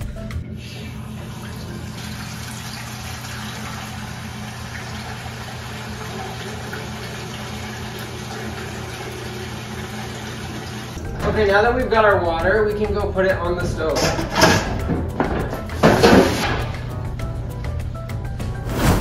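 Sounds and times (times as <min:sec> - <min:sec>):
tap water running into a pot: 0:01.0 - 0:11.0.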